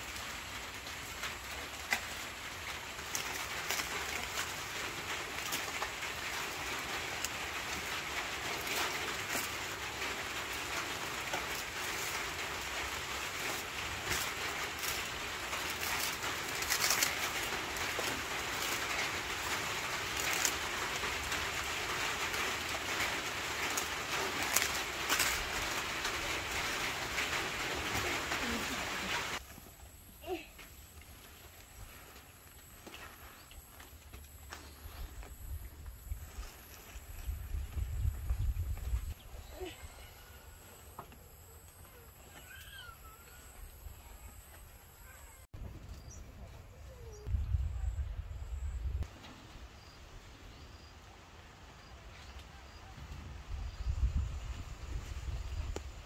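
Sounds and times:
dry leaves crackling and rustling: 0:00.0 - 0:39.7.

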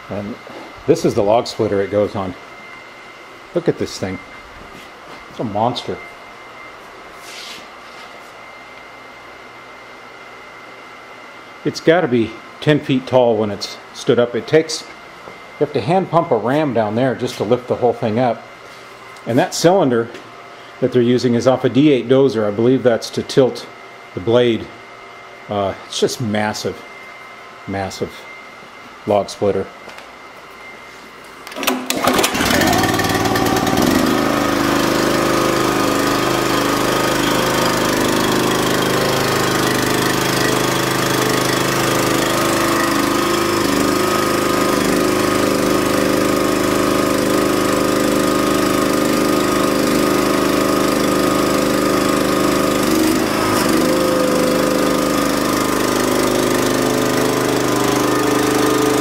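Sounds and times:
engine pull-started and running: 0:31.4 - 0:59.0.

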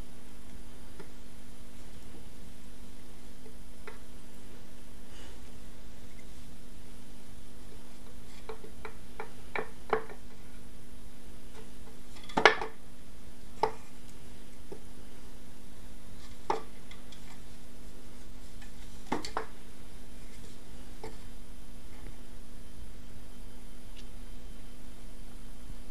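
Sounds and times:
steady low hum: 0:00.0 - 0:25.9
taps and knocks on wood: 0:08.4 - 0:10.3, 0:19.1 - 0:19.5.

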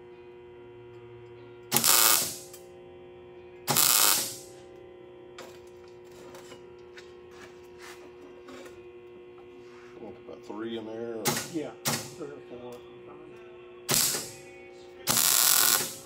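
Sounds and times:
steady hum: 0:00.0 - 0:16.0
welder crackling sizzle: 0:01.7 - 0:02.6, 0:03.7 - 0:04.5, 0:13.9 - 0:14.4, 0:15.1 - 0:16.0.

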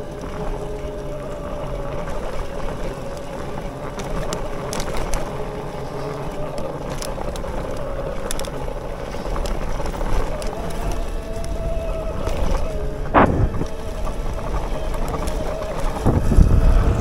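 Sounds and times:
e-bike motor whining: 0:00.0 - 0:17.0
low rumble: 0:12.9 - 0:14.8
sharp thump: 0:13.2 - 0:13.6.

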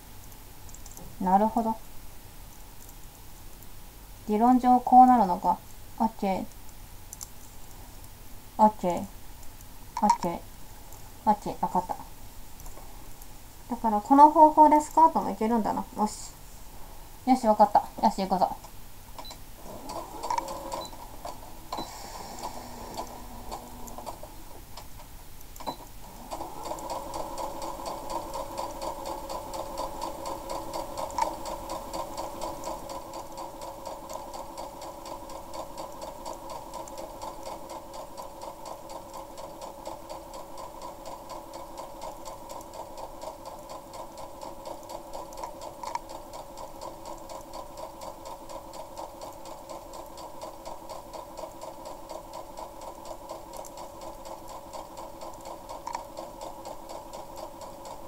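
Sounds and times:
sewing machine stitching: 0:19.6 - 0:24.9, 0:25.6 - 0:58.0.

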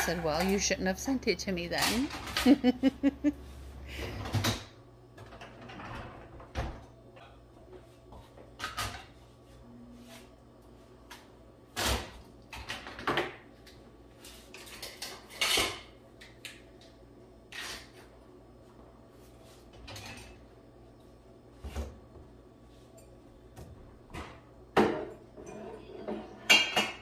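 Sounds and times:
dishes clinking and knocking: 0:24.1 - 0:27.0.

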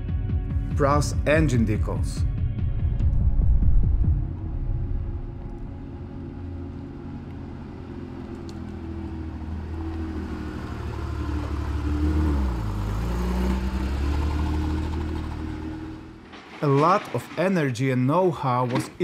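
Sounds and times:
car engine running: 0:02.4 - 0:16.5.

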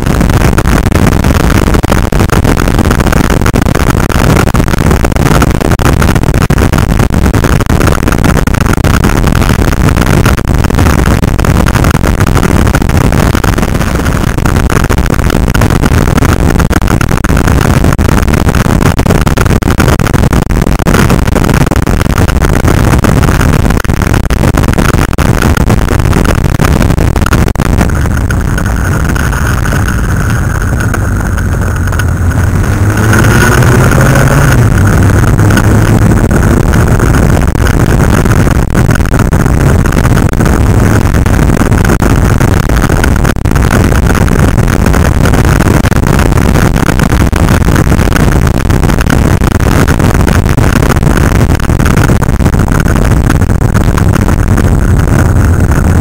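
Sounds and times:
wind rushing over microphone: 0:00.0 - 0:56.0
motorcycle engines running: 0:27.8 - 0:38.6.

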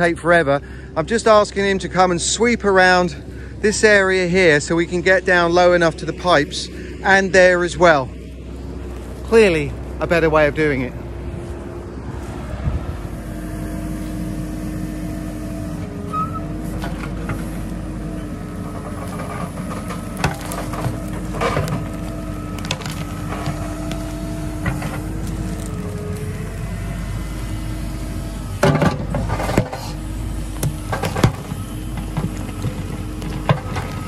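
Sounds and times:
backhoe diesel engine running: 0:00.0 - 0:34.0
bucket scraping and knocking: 0:18.7 - 0:23.8, 0:28.6 - 0:34.0.

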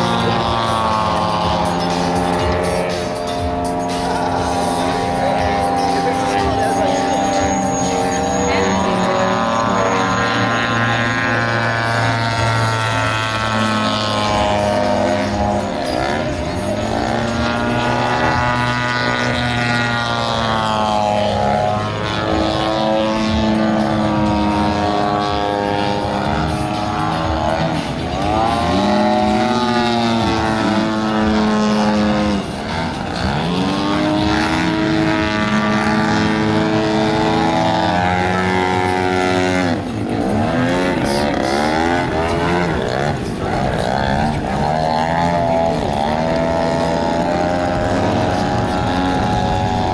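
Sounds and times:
model airplane engine and propeller: 0:00.0 - 0:49.9.

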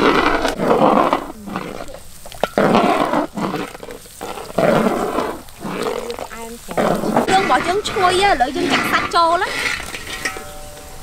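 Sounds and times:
metal spatula scraping wok: 0:05.7 - 0:11.0.

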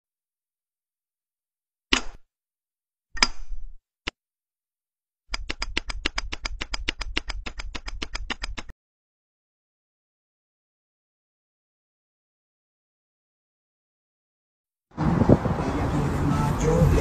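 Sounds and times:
rapid sharp clicks: 0:05.3 - 0:08.7.

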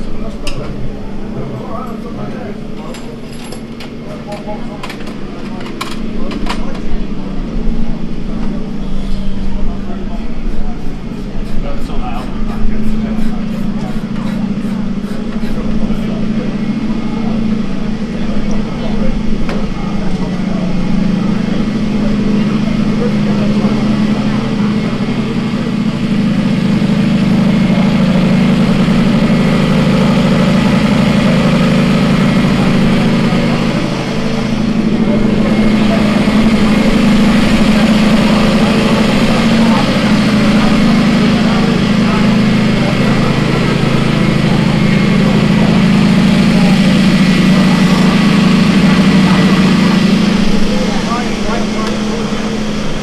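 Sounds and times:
engine idling: 0:00.0 - 0:53.0.

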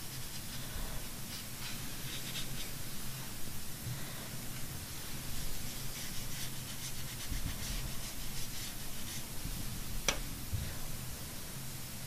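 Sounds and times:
paintbrush rubbing on paper: 0:00.0 - 0:03.2, 0:05.0 - 0:09.5.

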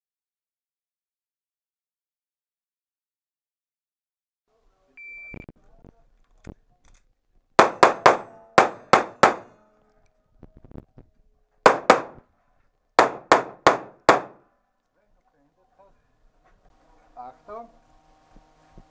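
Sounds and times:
pistol shots echoing indoors: 0:07.6 - 0:09.5.

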